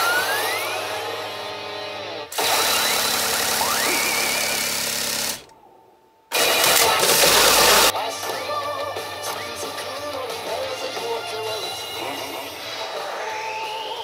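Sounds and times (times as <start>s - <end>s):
pachinko machine effect sounds: 6.3s - 7.9s
pachinko machine music: 6.3s - 7.9s.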